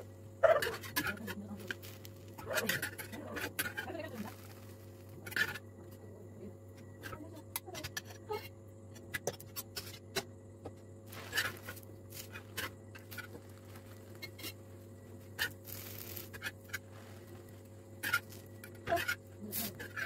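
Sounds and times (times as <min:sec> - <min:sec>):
steady low hum: 0:00.0 - 0:20.0
metal utensils scraping griddle pan: 0:02.4 - 0:04.6, 0:05.2 - 0:05.6, 0:14.2 - 0:14.6, 0:15.4 - 0:16.9, 0:18.0 - 0:20.0.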